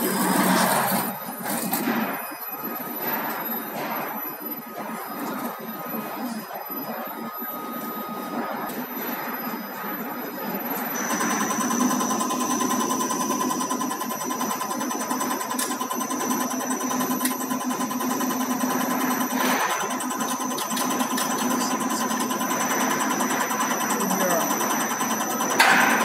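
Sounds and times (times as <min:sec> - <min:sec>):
pump motor hum: 0:11.0 - 0:26.0.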